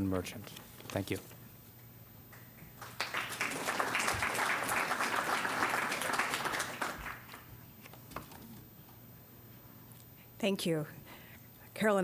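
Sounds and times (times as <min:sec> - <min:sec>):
audience clapping: 0:02.3 - 0:07.6.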